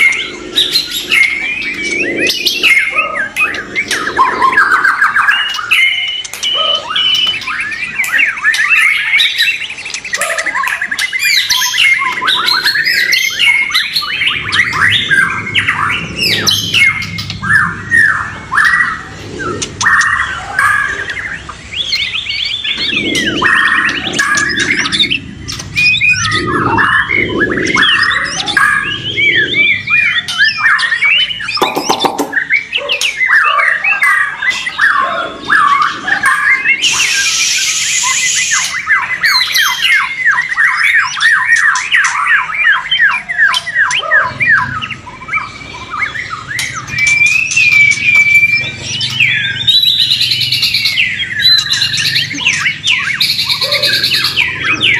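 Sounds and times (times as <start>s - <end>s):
birds singing: 0.0s - 54.9s.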